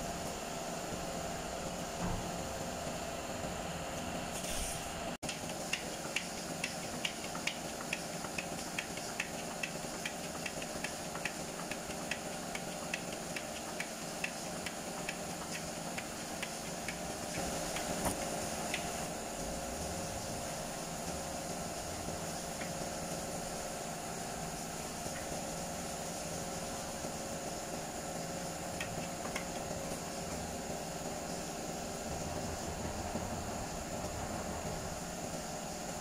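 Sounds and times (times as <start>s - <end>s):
workshop background hiss: 0.0s - 36.0s.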